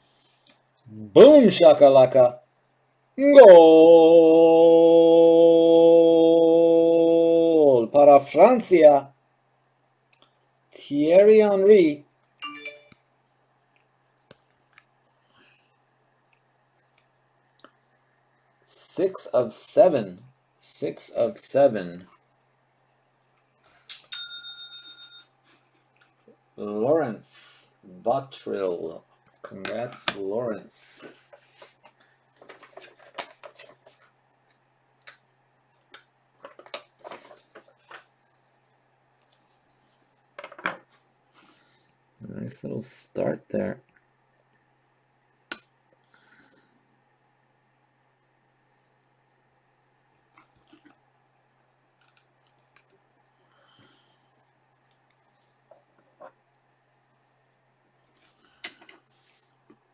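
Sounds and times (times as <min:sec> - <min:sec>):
faint steady hum: 0:00.0 - 0:59.9
cards rustling and scraping: 0:30.9 - 0:34.6, 0:36.4 - 0:38.1.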